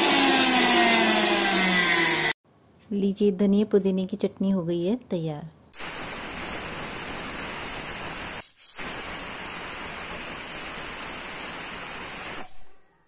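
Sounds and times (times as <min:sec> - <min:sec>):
pressure cooker whistling: 0:00.0 - 0:02.4, 0:05.8 - 0:13.0.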